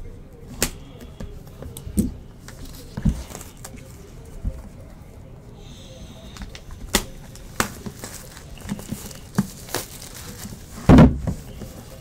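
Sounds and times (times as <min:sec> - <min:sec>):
cardboard box thump: 0:10.8 - 0:11.5.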